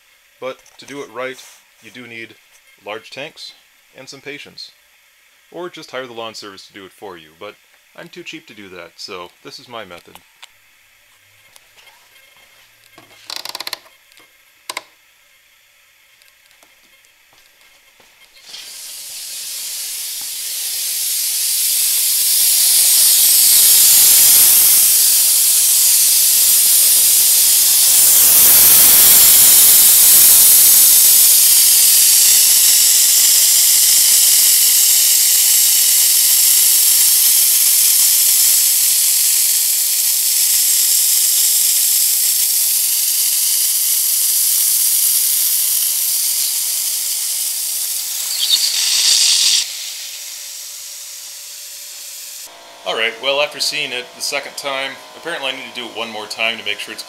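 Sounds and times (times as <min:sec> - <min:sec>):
sprinkler heads hissing air and water: 0:18.3 - 0:52.5.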